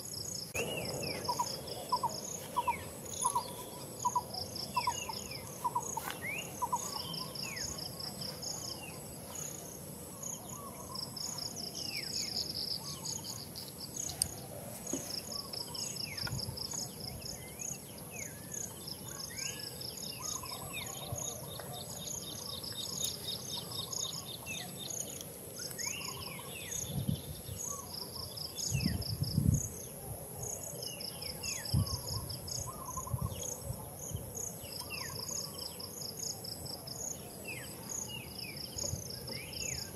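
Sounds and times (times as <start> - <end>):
birds chirping: 0.0 - 29.0
insects trilling: 0.0 - 39.9.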